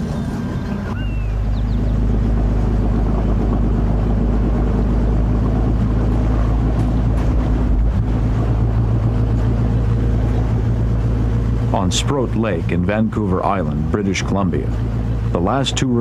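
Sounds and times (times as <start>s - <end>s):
motorboat engine droning: 0.0s - 16.0s.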